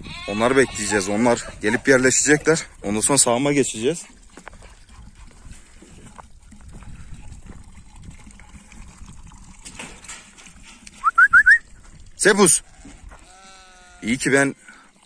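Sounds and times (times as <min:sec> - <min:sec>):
wind rumbling on microphone: 0:00.0 - 0:03.1, 0:04.2 - 0:13.3
footsteps crunching on stones: 0:04.2 - 0:07.7, 0:12.7 - 0:13.4
rising whistle-like chirp: 0:11.0 - 0:11.6.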